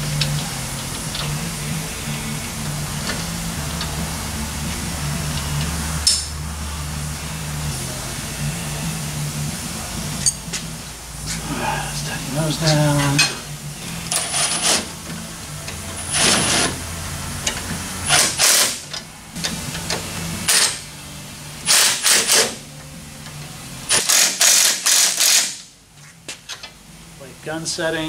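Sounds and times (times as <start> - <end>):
impact wrench rattling: 14.1 - 14.9, 17.4 - 20.8, 21.7 - 22.6, 23.9 - 25.7.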